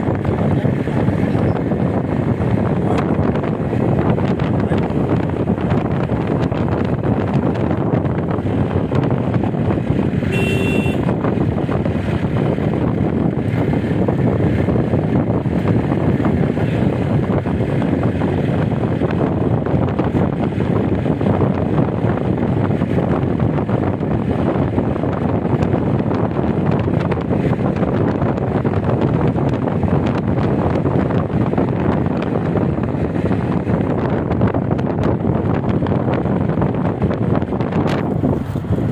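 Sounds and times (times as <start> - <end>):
road and engine noise: 0.0 - 38.9
wind buffeting microphone: 0.0 - 38.9
brief high tone: 10.3 - 11.1.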